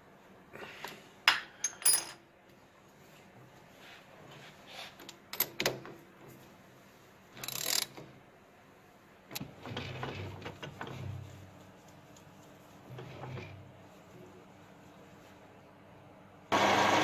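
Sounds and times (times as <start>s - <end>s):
ratchet wrench clicking: 7.4s - 8.0s.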